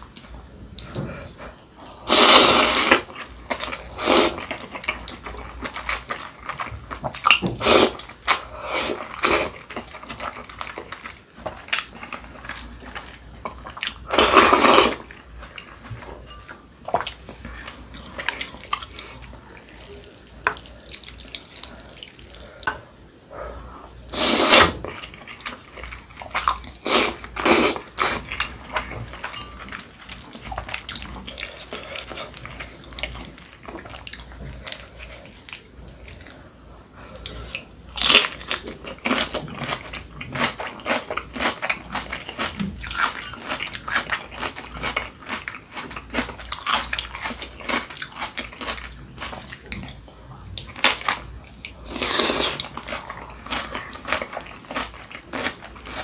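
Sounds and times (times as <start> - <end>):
person slurping noodles: 0.9 - 3.1, 3.8 - 4.4, 14.1 - 15.1, 24.1 - 24.8, 26.8 - 28.2, 51.8 - 52.7.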